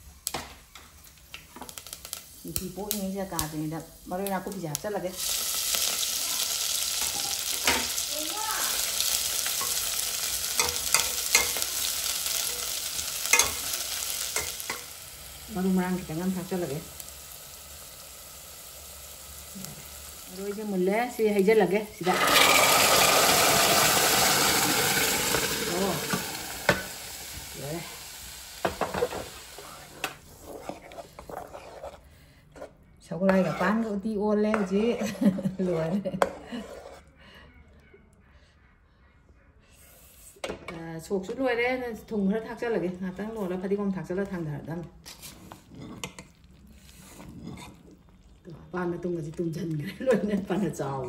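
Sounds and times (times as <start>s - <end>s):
greens sizzling in hot oil: 0.0s - 30.6s
wooden spoon stirring thick mixture: 29.6s - 37.1s, 44.2s - 50.7s.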